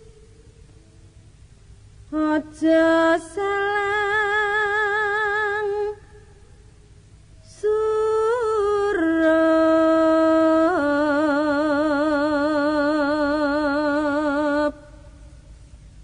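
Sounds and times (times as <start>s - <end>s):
person singing slow melody: 2.1s - 6.4s, 7.4s - 15.6s.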